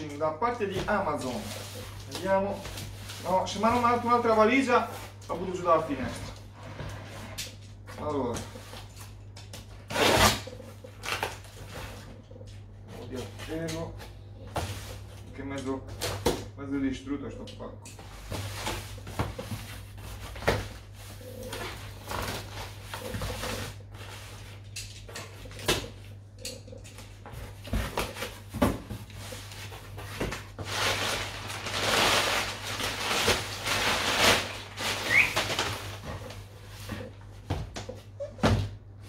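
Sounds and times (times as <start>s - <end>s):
packing paper rustling: 0.8s - 5.6s, 27.8s - 36.9s.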